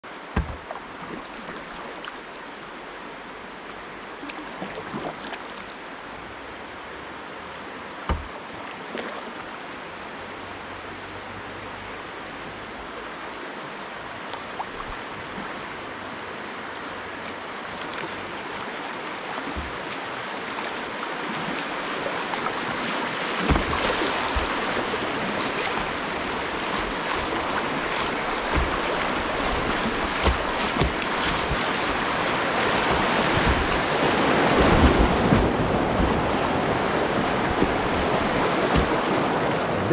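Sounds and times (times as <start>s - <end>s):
water splashing over bow: 0.1s - 2.3s, 4.3s - 5.7s, 8.0s - 9.8s, 17.6s - 39.9s
river water rushing over rocks: 0.1s - 39.9s
paddle knocks and splashes: 0.2s - 1.9s, 8.0s - 9.2s, 19.3s - 39.9s.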